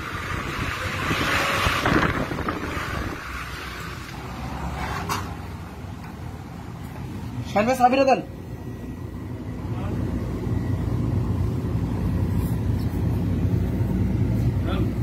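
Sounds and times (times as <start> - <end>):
wind buffeting microphone: 0.0 - 3.4.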